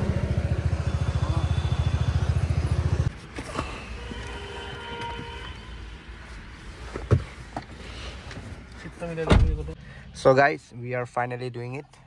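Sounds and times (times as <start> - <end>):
motorbike engine running: 0.0 - 3.1.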